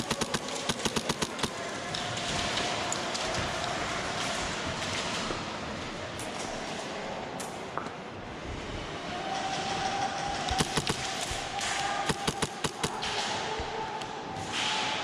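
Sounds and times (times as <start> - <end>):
airsoft gunfire snaps: 0.0 - 1.6, 10.5 - 11.0, 12.0 - 13.2.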